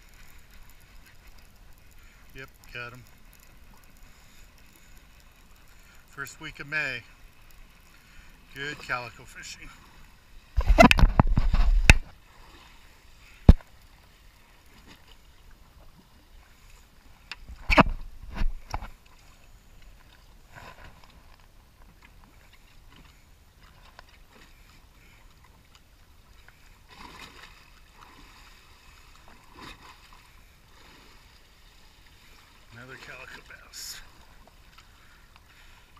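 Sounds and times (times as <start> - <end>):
water lapping around boat: 0.0 - 35.9.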